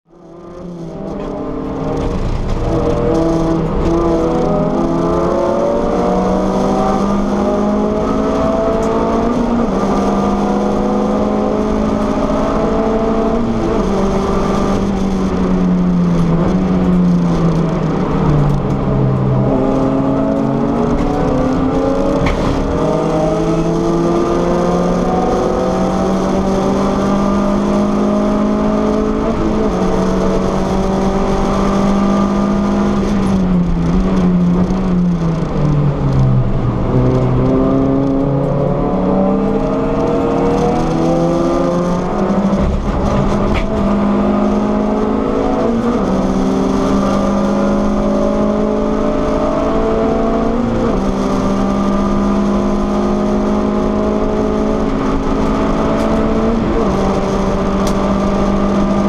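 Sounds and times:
race car engine revving: 0.1s - 59.0s.

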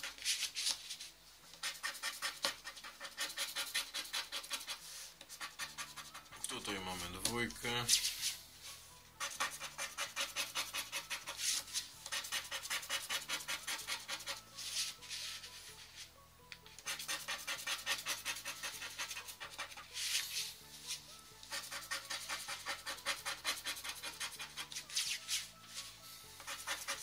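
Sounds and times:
faint background music: 0.0s - 27.0s
scratch card being scraped: 1.5s - 6.4s, 9.2s - 15.6s, 16.8s - 27.0s.

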